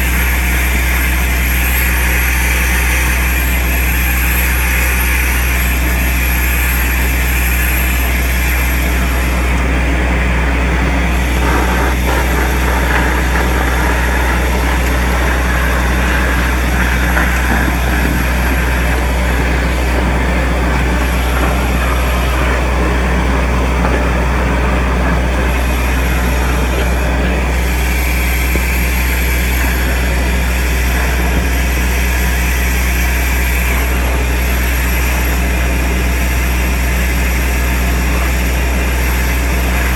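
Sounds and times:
soil vacuum machine droning: 0.0 - 39.9
air rushing through suction hose: 10.9 - 35.3.

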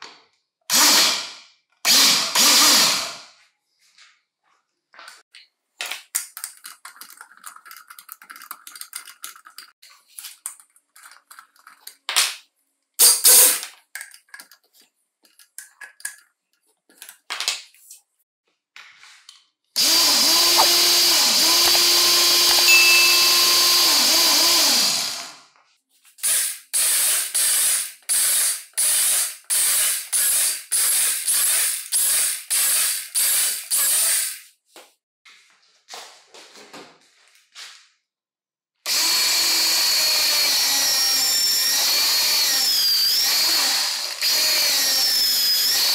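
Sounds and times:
drill boring into wood: 0.7 - 1.3, 1.9 - 3.2, 19.8 - 25.4, 26.2 - 34.4, 38.9 - 45.9
drill motor running: 1.9 - 3.2, 19.8 - 25.4, 38.9 - 45.9.

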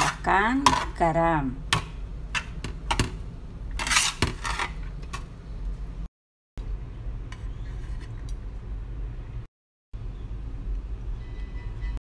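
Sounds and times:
metal spatula scraping a wok: 0.0 - 1.1, 3.7 - 5.0.

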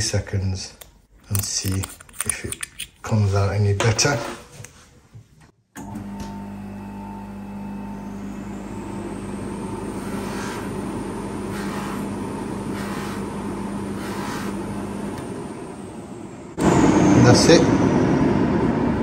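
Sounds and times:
polishing motor humming and whining: 5.8 - 15.8
brushing hiss on buffing mop: 10.0 - 10.8, 11.5 - 13.3, 13.9 - 14.7.

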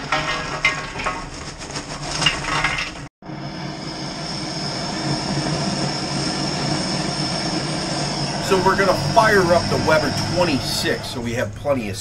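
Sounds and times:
charcoal clattering into grill: 0.0 - 3.1
gas torch hissing: 3.6 - 11.4.

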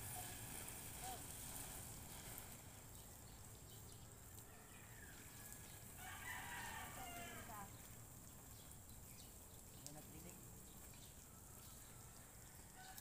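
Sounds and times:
rooster crowing: 4.4 - 7.7, 11.3 - 13.0.

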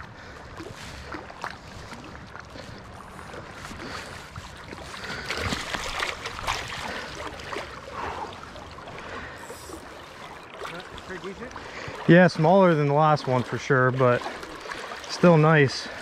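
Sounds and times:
creek water splashing: 0.0 - 16.0.

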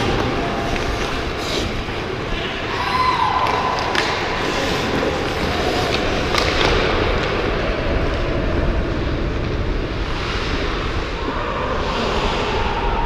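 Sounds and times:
wind rumbling over microphone: 0.0 - 13.0
skate blades hissing on ice: 0.9 - 2.0.

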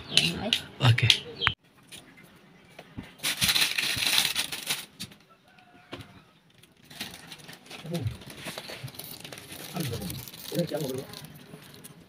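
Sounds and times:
plastic wrapper crinkling: 3.2 - 5.0, 6.5 - 12.0.

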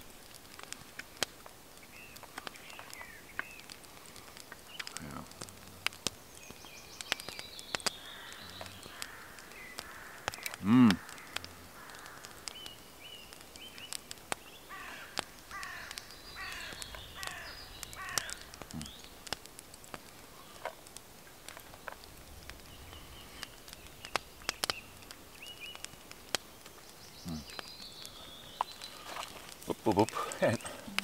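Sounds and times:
campfire crackling: 0.0 - 31.0
crow cawing: 8.0 - 12.5, 14.7 - 18.6
short high bird calls: 14.6 - 19.1.

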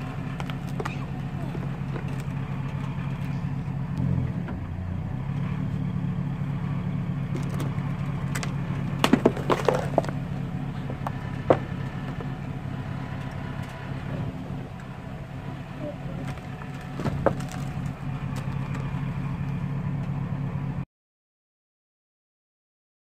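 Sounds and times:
truck engine idling: 0.0 - 20.8
cardboard box crushed crackling: 7.3 - 12.4, 16.2 - 18.8.

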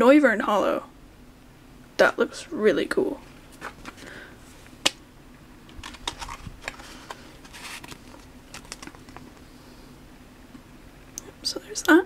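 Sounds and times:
foil wrapper rustling: 5.7 - 9.4.

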